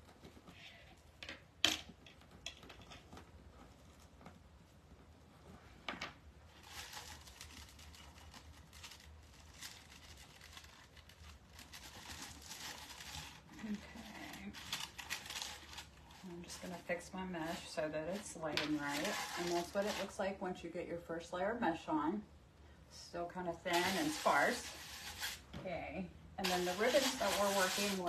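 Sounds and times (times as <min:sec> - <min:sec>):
mesh rustling and crinkling: 0:01.8 - 0:05.8, 0:06.4 - 0:20.3, 0:23.6 - 0:25.6, 0:26.4 - 0:28.0.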